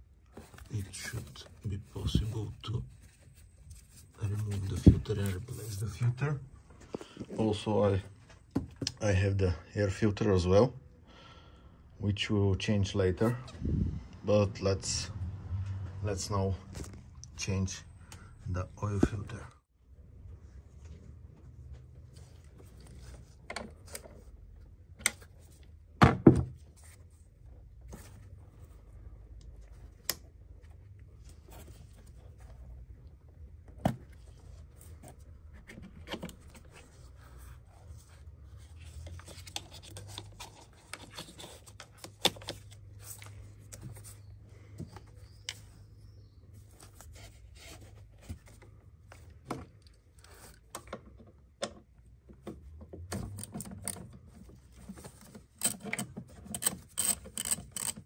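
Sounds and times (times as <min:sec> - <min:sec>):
plastic and metal parts clicking: 0:53.1 - 0:58.0.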